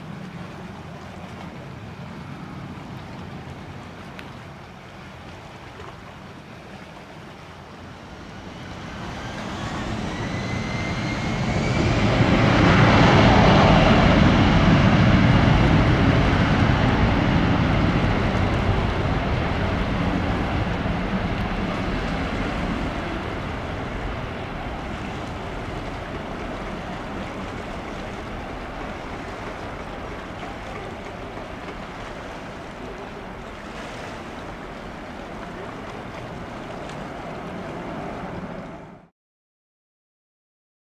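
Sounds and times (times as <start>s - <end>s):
jet passing with rushing roar: 7.8s - 39.1s
jet engines spooling up: 8.0s - 39.1s.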